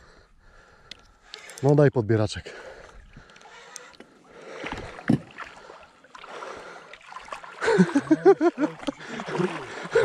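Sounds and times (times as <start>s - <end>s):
water sloshing and splashing: 2.5s - 10.0s.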